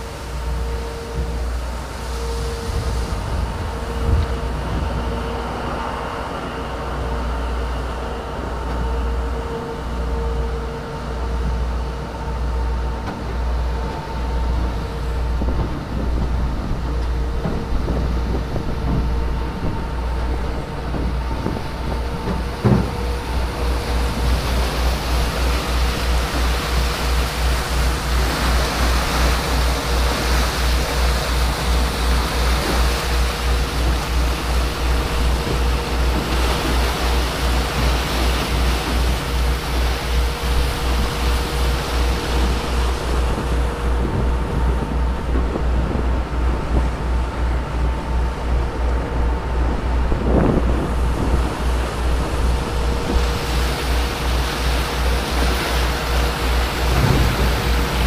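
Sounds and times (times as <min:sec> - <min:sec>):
boat engine throbbing and whining: 0:00.0 - 0:58.0
churning water and ice slush hiss: 0:00.0 - 0:58.0
knock: 0:22.6 - 0:23.0.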